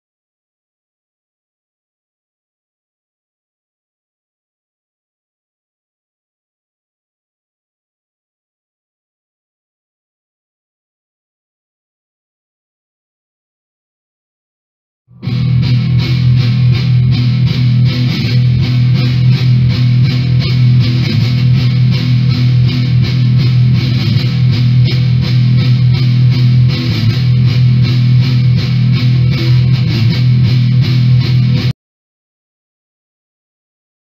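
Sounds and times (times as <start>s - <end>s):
electric guitar rock music: 15.1s - 31.7s.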